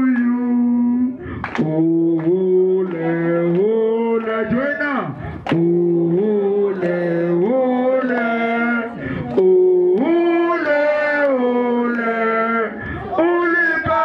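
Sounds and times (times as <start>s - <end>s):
group of people singing: 0.0s - 4.8s, 5.4s - 14.0s
singers breathing: 1.1s - 1.6s, 5.1s - 5.5s, 8.9s - 9.4s, 12.7s - 13.2s.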